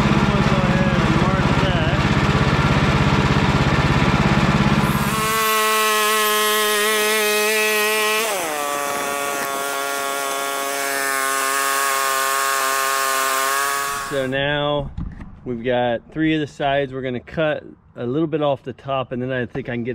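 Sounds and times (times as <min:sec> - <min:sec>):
sawmill engine whining: 0:00.0 - 0:14.7.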